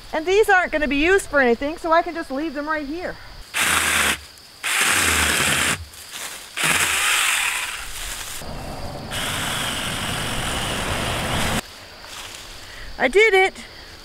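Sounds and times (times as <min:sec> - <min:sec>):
mini chainsaw cutting saplings: 0:03.5 - 0:08.4, 0:09.1 - 0:11.6.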